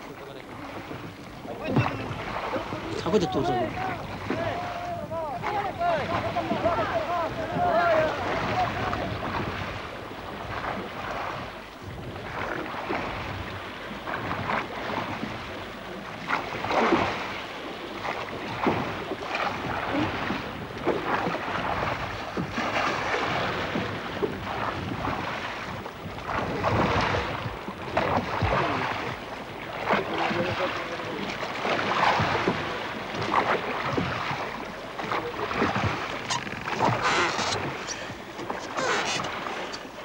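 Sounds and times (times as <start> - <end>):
water rushing and splashing: 0.0 - 40.0
wind on microphone: 0.6 - 17.4, 18.0 - 30.4.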